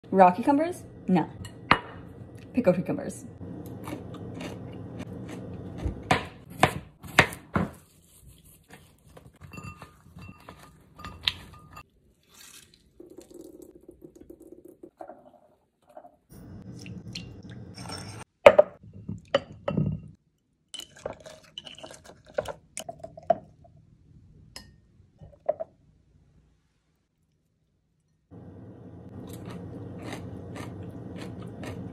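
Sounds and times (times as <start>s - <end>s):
glass jar and dishes clinking: 9.4s - 11.8s, 17.7s - 18.3s
liquid dripping and pouring: 12.5s - 15.0s.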